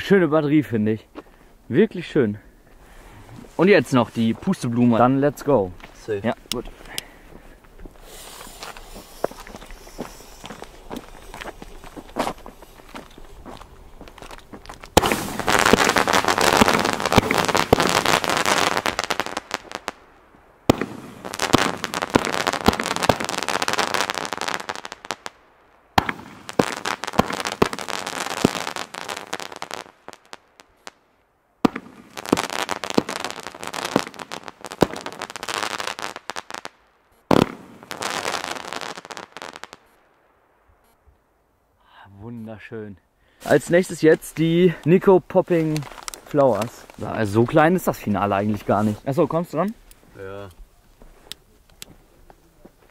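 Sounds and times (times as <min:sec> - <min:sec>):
firework comets crackling: 0:02.8 - 0:31.0, 0:31.6 - 0:41.0, 0:43.4 - 0:52.9
sharp firework bang: 0:15.0 - 0:18.2, 0:20.7 - 0:23.2, 0:26.0 - 0:26.6.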